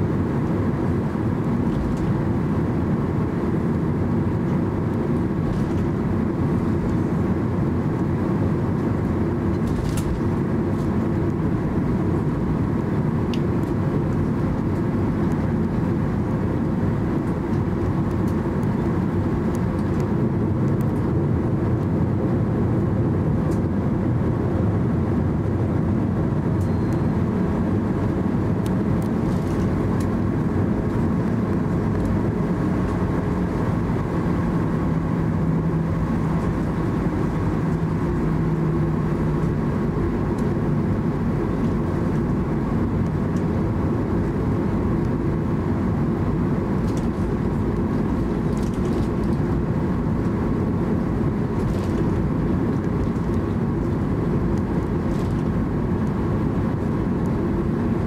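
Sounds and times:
jet engines rumble and hum: 0.0 - 58.0.

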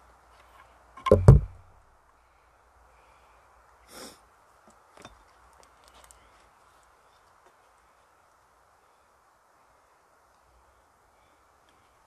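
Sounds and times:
heavy wooden knocks: 1.0 - 1.7
soft rustle: 4.5 - 8.5.

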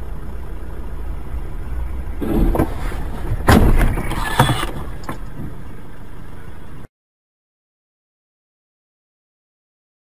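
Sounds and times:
road and engine rumble: 0.0 - 6.9
car ploughing into snow: 2.2 - 5.7.

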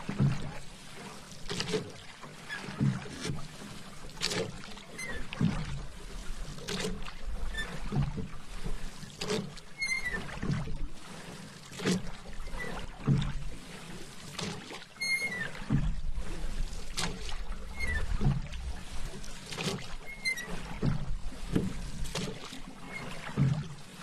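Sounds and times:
paddle strokes in water: 0.0 - 24.0
short high squeak: 15.0 - 15.5, 17.7 - 18.3, 20.0 - 20.6.

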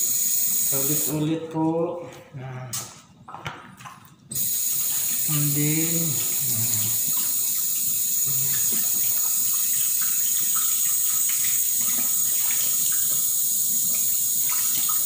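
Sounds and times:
tap water running into sink: 3.4 - 15.0.

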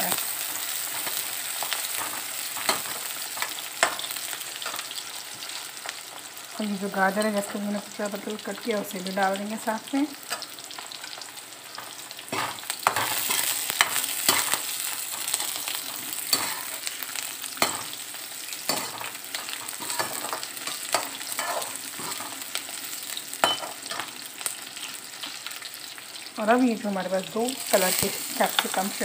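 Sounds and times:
vegetables sizzling in hot oil: 0.0 - 29.0
metal spatula scraping a pan: 11.8 - 17.0, 18.7 - 22.5.

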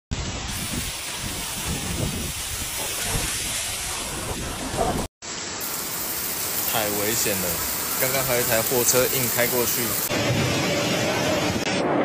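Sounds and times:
wind buffeting microphone: 0.2 - 5.1
heavy rain hiss: 0.2 - 11.1.

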